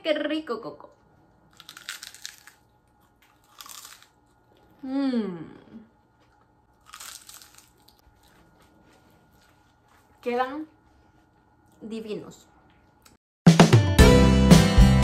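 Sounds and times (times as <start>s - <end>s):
crunchy fritters being chewed: 1.3s - 4.8s, 6.0s - 11.8s
person humming mmm: 4.8s - 5.9s.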